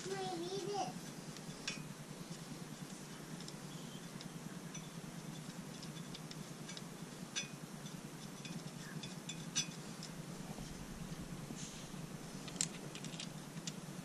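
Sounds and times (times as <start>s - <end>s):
faint low hum: 0.0s - 14.0s
light metallic clicks of bolts: 12.4s - 13.8s.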